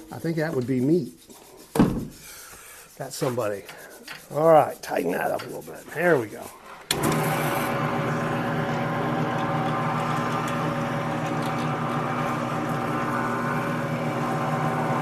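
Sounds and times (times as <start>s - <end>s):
drill bit drilling wood: 6.9s - 15.0s
drill press motor hum: 6.9s - 15.0s.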